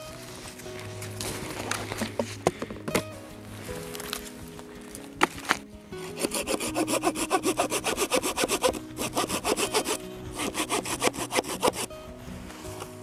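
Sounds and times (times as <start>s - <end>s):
hand saw cutting wood: 5.3s - 11.9s.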